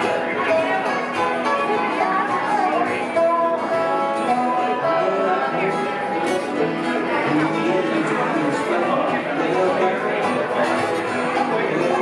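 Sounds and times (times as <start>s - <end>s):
acoustic guitars: 0.0s - 12.0s
banjo: 0.0s - 12.0s
dobro: 0.0s - 12.0s.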